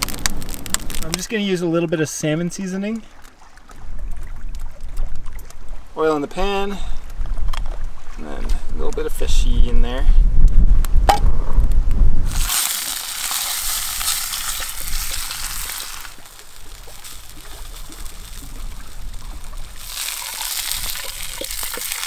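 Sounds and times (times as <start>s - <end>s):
fish sizzling in a pan: 0.0s - 1.1s, 12.3s - 22.0s.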